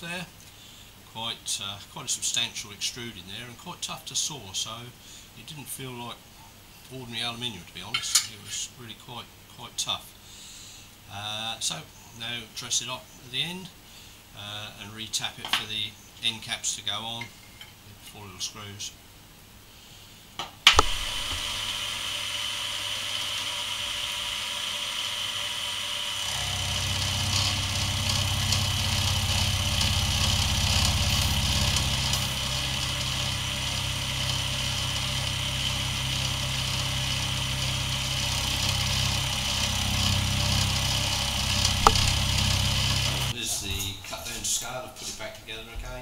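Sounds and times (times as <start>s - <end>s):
milling machine cutting metal: 20.8s - 43.3s
heavy low hum: 26.3s - 43.4s.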